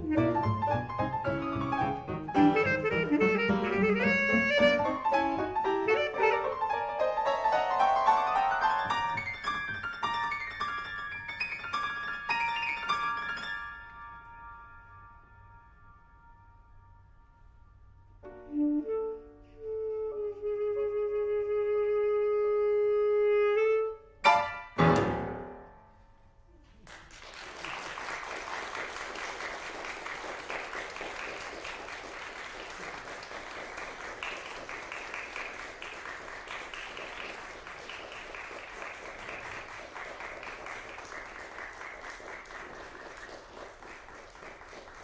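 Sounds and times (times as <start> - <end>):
jazz trio closing chords: 0.0 - 6.8
tenor saxophone note: 2.4 - 5.2
audience applause: 26.8 - 45.0.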